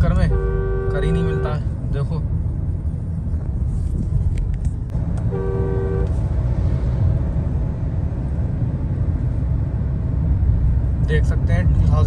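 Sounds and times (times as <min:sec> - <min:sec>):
engine and road rumble in car: 0:00.0 - 0:12.0
short car horn blast: 0:00.2 - 0:01.6, 0:05.3 - 0:06.2.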